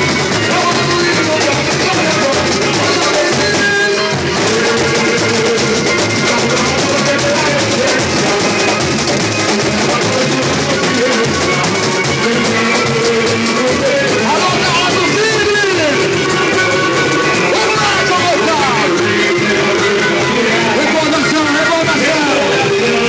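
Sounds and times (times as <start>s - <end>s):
samba drumming: 0.0s - 23.0s
samba song melody: 0.0s - 23.0s.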